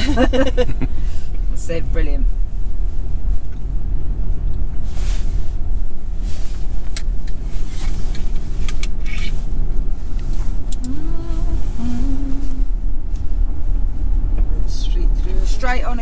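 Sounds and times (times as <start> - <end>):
car engine and tyre rumble: 0.0 - 16.0
person humming: 10.8 - 12.7.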